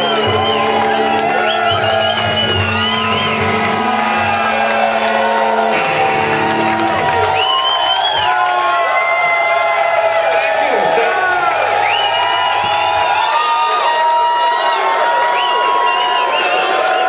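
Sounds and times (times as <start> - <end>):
electric guitars sustained chord: 0.0 - 8.2
crowd cheering and whooping: 0.0 - 17.0.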